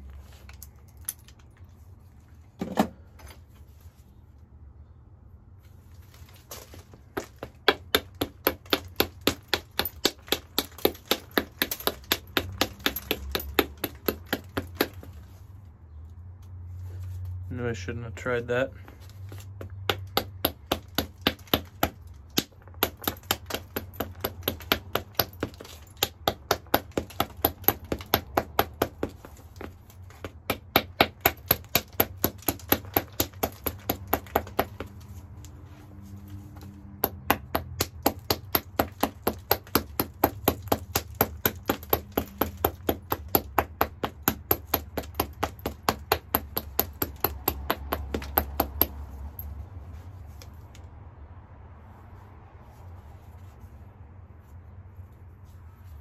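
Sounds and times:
stone tapping on stone: 0:18.9 - 0:35.0.

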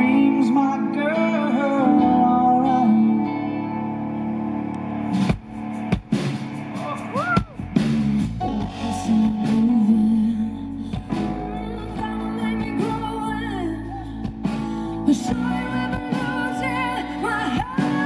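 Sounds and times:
woman singing: 0:08.4 - 0:18.0.

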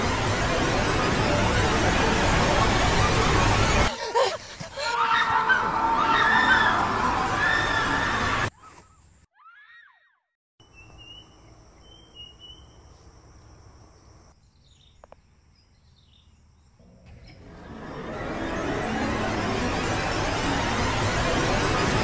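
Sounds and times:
rushing noise: 0:00.0 - 0:04.9, 0:05.6 - 0:08.5, 0:17.4 - 0:22.0
bird chirps: 0:10.6 - 0:13.0, 0:14.4 - 0:17.4.

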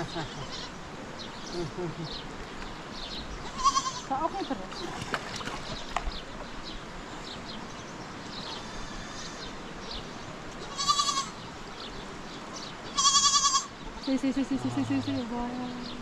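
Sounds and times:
livestock bleating: 0:00.1 - 0:00.8, 0:03.4 - 0:04.1, 0:08.5 - 0:09.6, 0:10.6 - 0:11.4, 0:12.9 - 0:13.7.

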